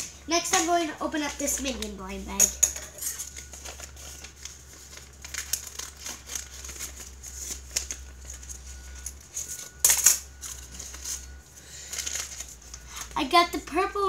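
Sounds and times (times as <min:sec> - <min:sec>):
paper bag crinkling: 0:02.9 - 0:09.7.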